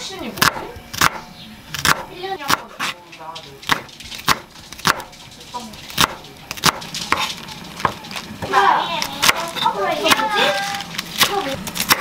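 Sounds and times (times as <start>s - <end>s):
knife chopping on wooden board: 0.4s - 3.0s, 3.6s - 5.1s, 6.0s - 8.0s, 9.2s - 10.3s.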